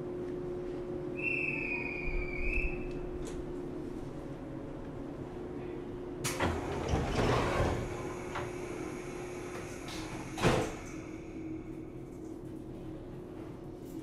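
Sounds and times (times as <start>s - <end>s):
steady train car hum: 0.0s - 14.0s
train sliding doors rattling: 6.2s - 11.2s.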